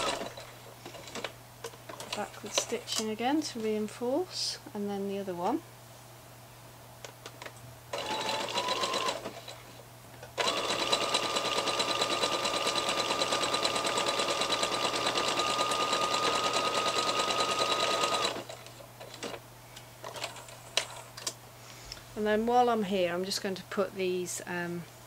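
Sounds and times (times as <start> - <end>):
sewing machine stitching: 0.0 - 1.3, 8.0 - 9.6, 10.4 - 19.4.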